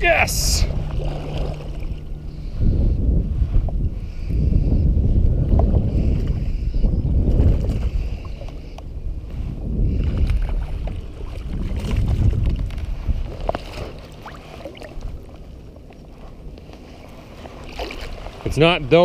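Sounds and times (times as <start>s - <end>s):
wind rumbling on microphone: 0.0s - 19.0s
fish splashing water: 0.7s - 2.1s, 13.5s - 15.7s, 17.5s - 18.4s.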